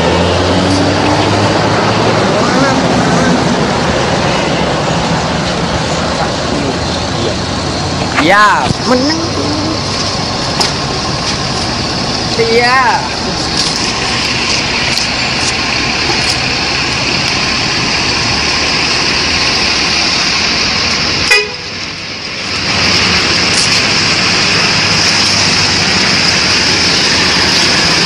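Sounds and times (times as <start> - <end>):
bus engine running: 0.0 - 28.0
road noise: 0.0 - 28.0.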